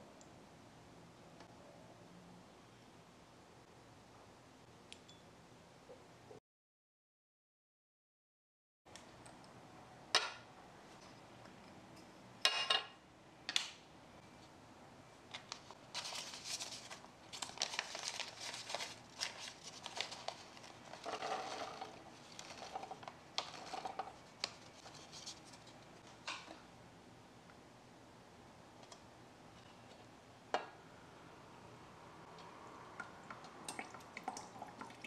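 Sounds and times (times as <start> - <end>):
paper bag crinkling: 15.3 - 25.8.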